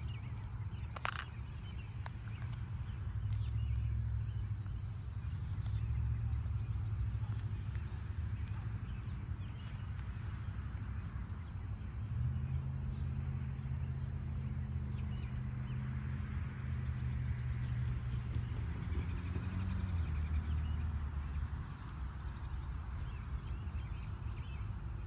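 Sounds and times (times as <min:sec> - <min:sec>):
birds chirping: 0:00.0 - 0:13.0, 0:22.1 - 0:25.0
distant locomotive engine hum: 0:00.0 - 0:25.0.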